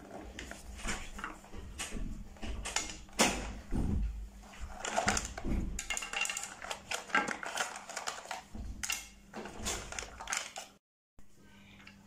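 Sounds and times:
plastic toy parts clattering: 4.7s - 10.8s.

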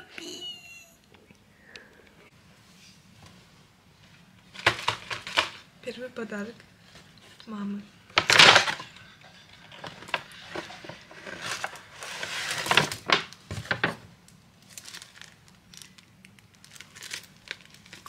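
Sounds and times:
paper bag rustling and crinkling: 9.6s - 14.0s, 14.6s - 18.0s
sharp paper crackles: 14.6s - 18.0s.

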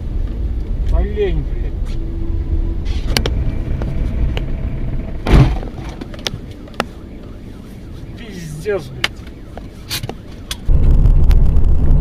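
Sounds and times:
car engine and tyres rumbling: 0.0s - 12.0s
loud thump: 5.2s - 5.8s.

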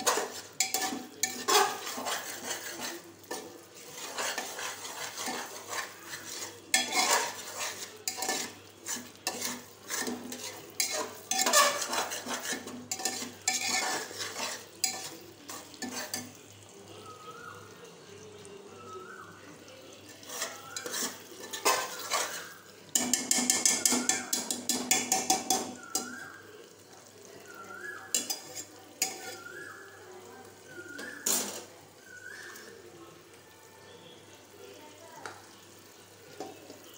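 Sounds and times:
spoon scraping metal pot: 0.0s - 16.4s, 20.0s - 26.3s, 27.8s - 29.8s, 30.6s - 31.8s.

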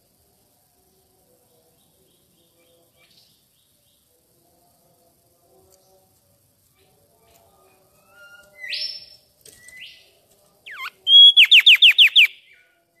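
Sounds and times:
bird whistling song: 8.0s - 10.0s, 10.7s - 13.0s.

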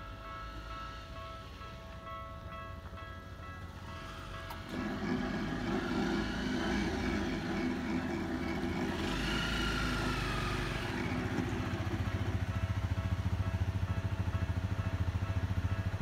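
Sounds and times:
motor vehicle engine: 4.5s - 16.0s.

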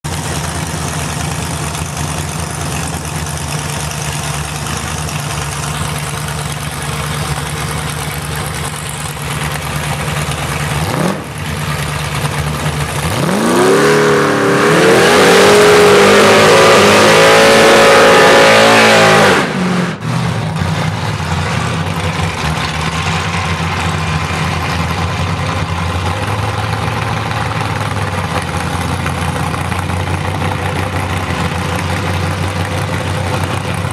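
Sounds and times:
drag race cars idling: 0.0s - 17.1s, 19.5s - 33.9s
engines revving hard: 10.8s - 11.5s, 12.9s - 23.6s.

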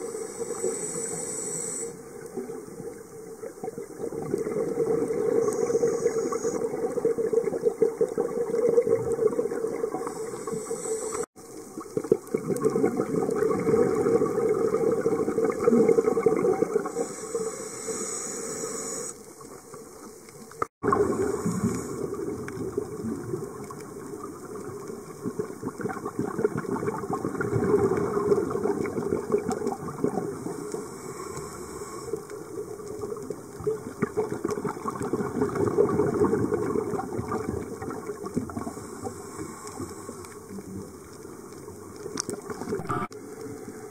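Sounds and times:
short hiss bursts: 0.0s - 2.0s, 10.0s - 11.3s, 16.9s - 19.3s
underwater bubbling and crackling: 0.0s - 43.9s.

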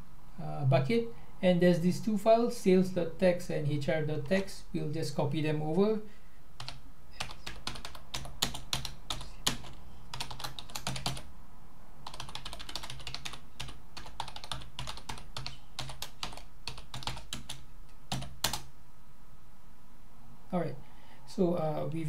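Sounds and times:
typing on computer keyboard: 6.6s - 11.2s, 12.0s - 18.7s.

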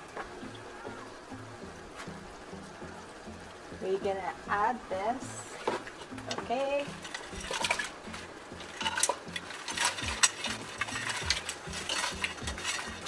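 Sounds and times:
crayfish shells clattering on metal: 5.6s - 13.0s.

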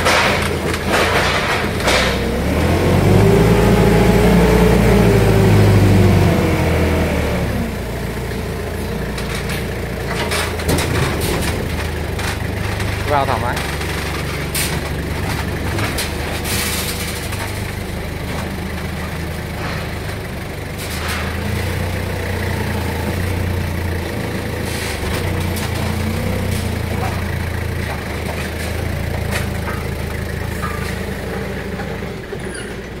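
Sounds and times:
forklift engine running: 0.0s - 33.0s.

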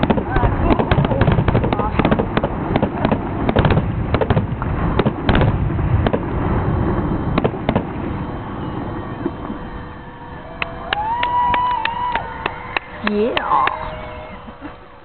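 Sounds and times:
fireworks bangs and cracks: 0.0s - 9.8s
low rumble: 0.0s - 15.0s.

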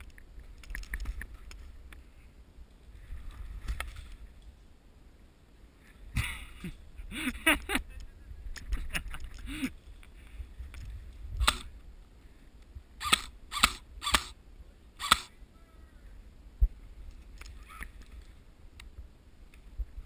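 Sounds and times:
airsoft rifle firing single shots: 11.4s - 11.7s, 13.0s - 14.4s, 15.0s - 15.3s.

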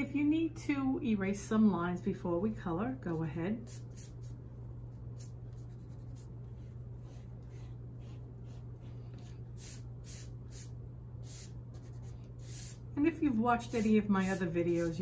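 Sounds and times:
steady low hum: 0.0s - 15.0s
eraser scrubbing paper: 5.2s - 15.0s.

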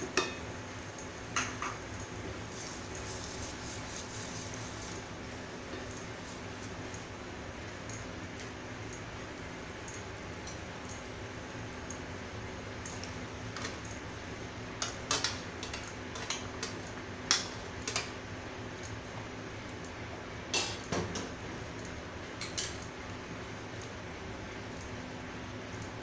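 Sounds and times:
induction cooker hum: 0.0s - 26.0s.

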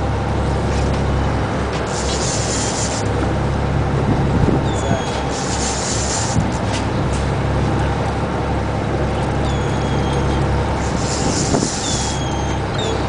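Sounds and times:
boat engine running: 0.0s - 13.0s
wind and sea noise: 0.0s - 13.0s
thin high whine: 1.8s - 3.1s, 9.5s - 13.0s.

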